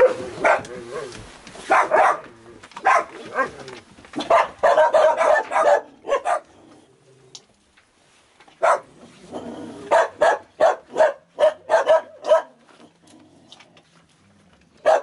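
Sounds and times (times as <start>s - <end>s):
dogs barking: 0.0s - 3.6s, 4.2s - 6.6s, 8.6s - 8.9s, 9.8s - 12.6s, 14.8s - 15.0s.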